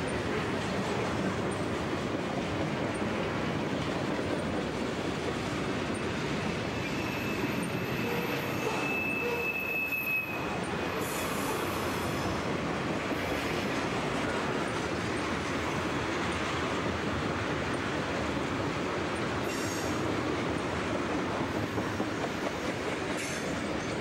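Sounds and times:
train wheels rolling on rail: 0.0s - 24.0s
high wheel squeal: 6.7s - 12.3s.

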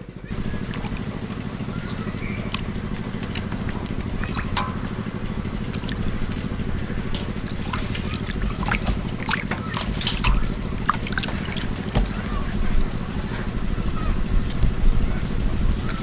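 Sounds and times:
low pulsing engine drone: 0.0s - 16.0s
water splashing in steel bowl: 0.3s - 12.2s.

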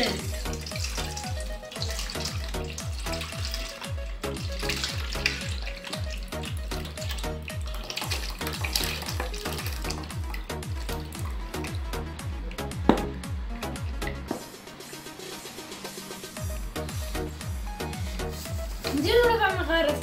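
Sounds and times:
milk pouring into metal bowl: 0.0s - 13.0s
background music with bass beat: 0.0s - 20.0s.

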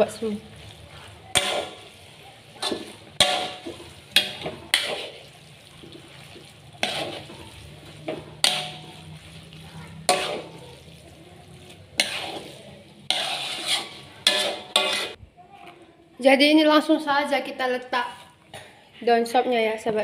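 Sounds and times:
metal spatula clanking on wok: 1.3s - 2.0s, 2.6s - 5.2s, 6.8s - 9.1s, 10.0s - 10.6s, 11.9s - 15.2s.

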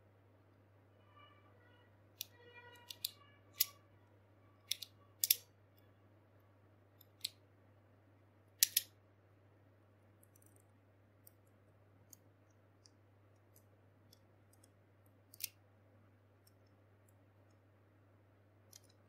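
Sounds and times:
plastic parts clicking: 2.2s - 3.8s, 4.6s - 5.5s, 7.0s - 7.4s, 8.6s - 8.9s, 10.2s - 15.6s, 18.6s - 19.0s.

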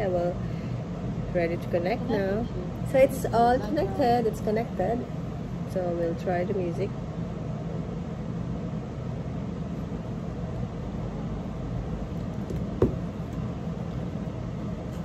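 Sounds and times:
room noise hum and hiss: 0.0s - 15.0s
speaker handling knock: 12.4s - 13.1s.

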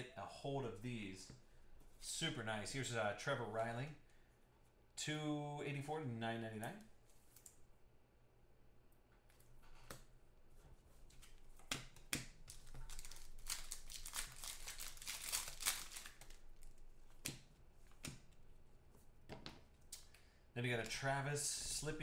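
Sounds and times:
foil wrapper tearing and crinkling: 12.5s - 16.8s.

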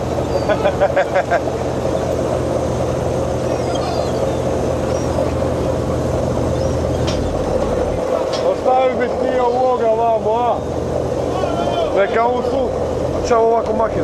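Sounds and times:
boat engines humming: 0.0s - 14.0s
water wash: 0.0s - 14.0s
faint gull calls: 3.4s - 5.2s.

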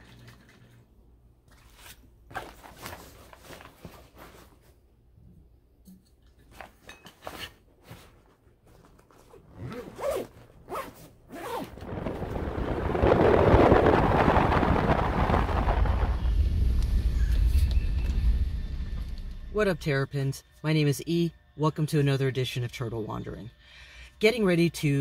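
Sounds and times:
backpack rustling and clicks: 6.5s - 12.4s
backpack zippers: 9.1s - 12.3s
rushing noise with low rumble: 11.4s - 19.8s.

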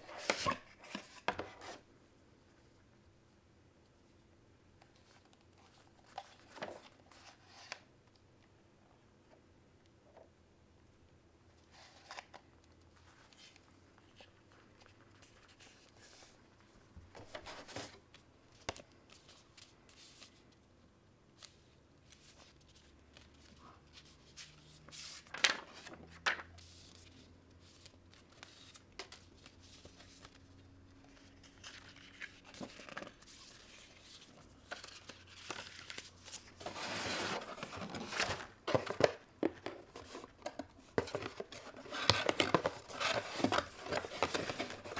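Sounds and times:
cardboard and paper rustling: 17.2s - 18.0s, 22.1s - 30.4s, 31.1s - 44.9s.

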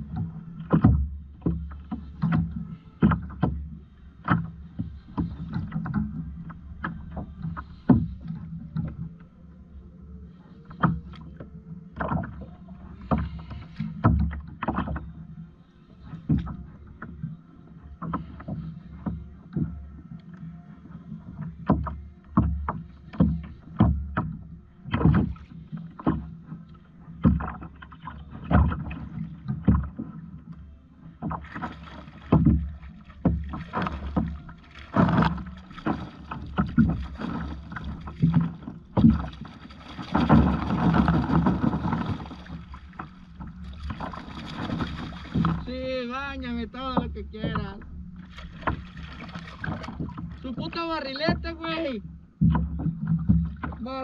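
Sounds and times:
knocks against boat: 0.0s - 9.1s, 10.7s - 15.2s, 16.0s - 17.4s, 21.3s - 30.5s, 31.1s - 54.0s
water slapping against kayak hull: 0.0s - 9.3s, 10.4s - 54.0s
steady low rumble: 30.2s - 51.6s.

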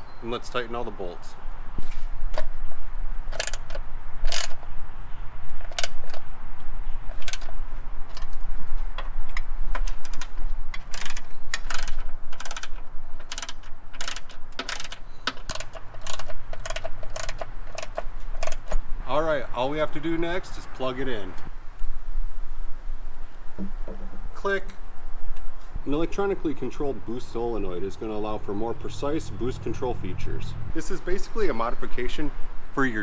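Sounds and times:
ratchet wrench clicking: 3.3s - 4.6s, 9.8s - 18.8s.

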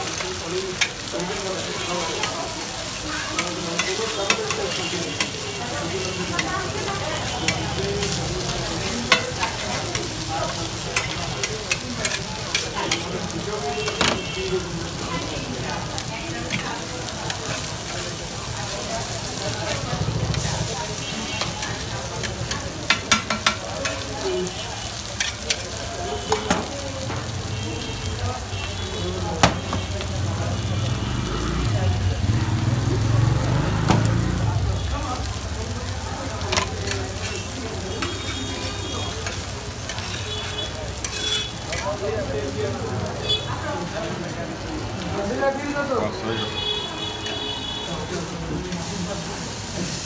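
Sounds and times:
eggs sizzling on griddle: 0.0s - 50.0s
metal spatulas clinking and scraping: 3.3s - 5.4s, 8.8s - 13.2s, 39.2s - 40.2s, 40.9s - 42.0s.

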